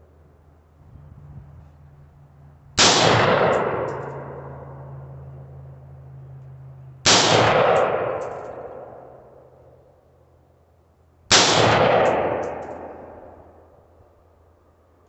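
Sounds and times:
rifle shots with echo: 2.8s - 4.9s, 7.0s - 9.5s, 11.3s - 13.7s.

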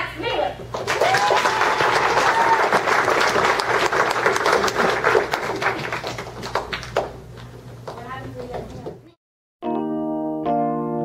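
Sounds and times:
audience applauding: 0.8s - 7.5s.

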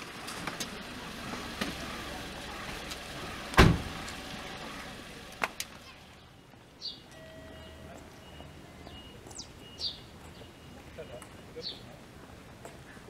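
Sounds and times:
loud heavy thump: 3.6s - 4.0s.

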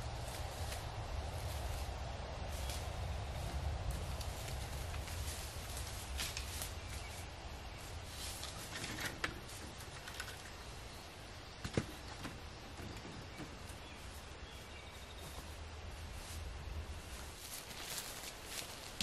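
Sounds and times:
footsteps on forest floor: 13.6s - 19.0s.

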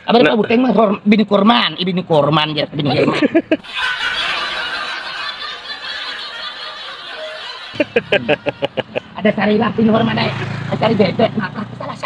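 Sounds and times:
man laughing: 2.9s - 9.2s.

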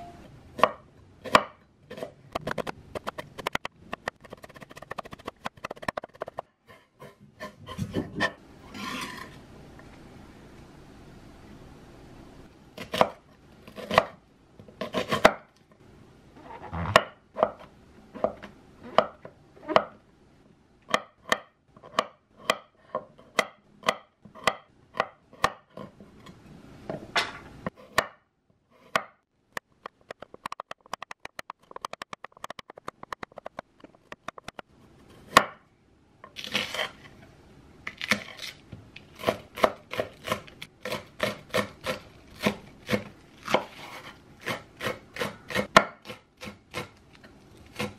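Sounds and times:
knife chopping on wooden board: 0.6s - 6.4s, 12.8s - 14.2s, 39.2s - 46.9s.

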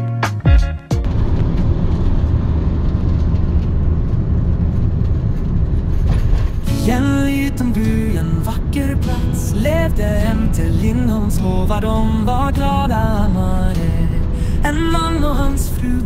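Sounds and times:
guitar music: 0.0s - 2.1s, 6.6s - 16.0s
road and engine rumble: 1.0s - 16.0s
song with singing: 6.7s - 16.0s.

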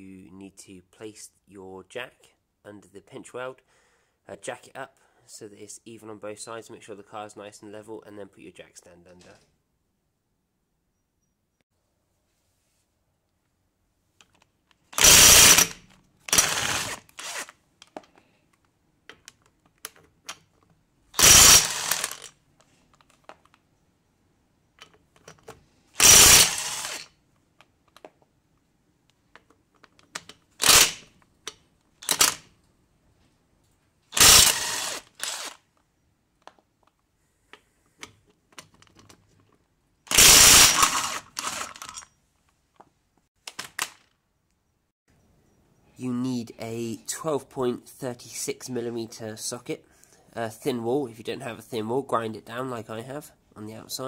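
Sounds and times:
impact wrench hammering: 15.0s - 17.0s, 21.2s - 22.2s.

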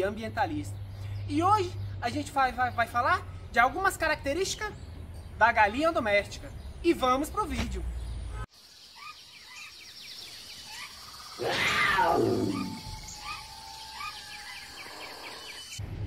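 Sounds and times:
small birds chirping: 0.0s - 15.8s
big cat roaring: 11.4s - 13.4s.

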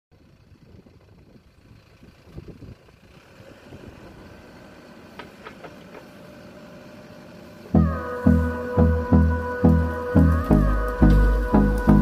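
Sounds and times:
diesel engine rumbling: 0.1s - 12.0s.

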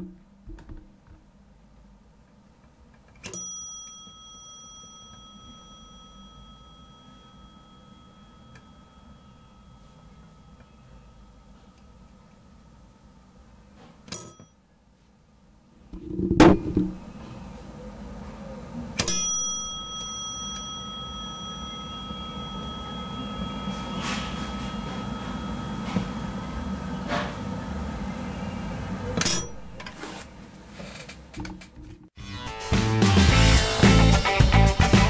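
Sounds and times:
elevator chime: 3.2s - 13.2s, 14.1s - 14.6s, 19.0s - 29.8s
low hum: 15.8s - 29.9s.

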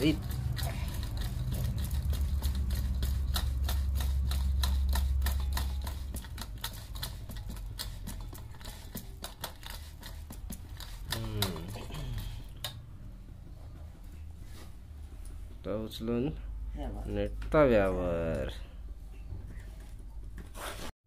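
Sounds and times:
hands patting dough on metal plate: 0.0s - 13.5s.

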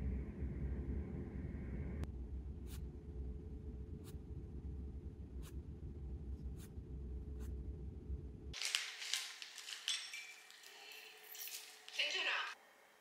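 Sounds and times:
low steady hum: 0.0s - 8.6s.

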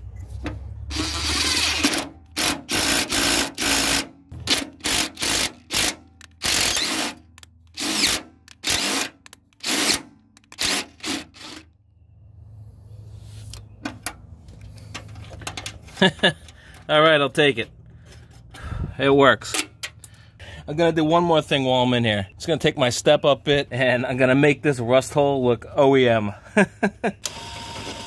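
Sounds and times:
cordless drill pulses: 0.9s - 11.6s, 27.2s - 28.0s.

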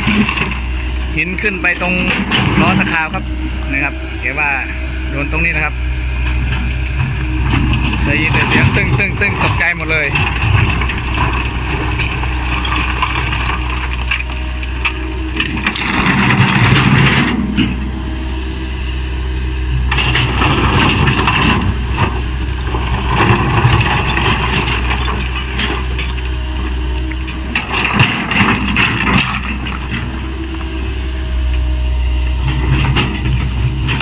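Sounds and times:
excavator engine running: 0.0s - 34.0s
stones grinding and clattering: 10.2s - 17.6s.

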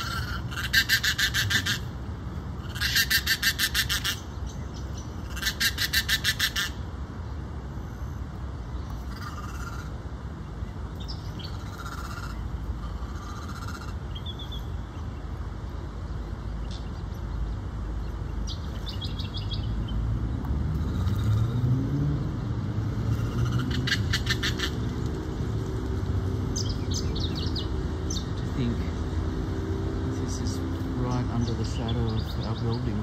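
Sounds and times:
freeway traffic rumble: 0.0s - 33.0s
vehicle engine rising in pitch: 20.0s - 31.1s.

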